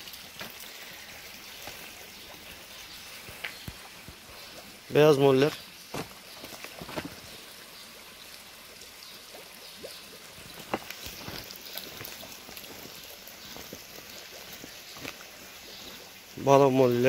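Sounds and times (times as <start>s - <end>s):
faint trickling water: 0.0s - 17.0s
small knocks: 5.9s - 7.2s.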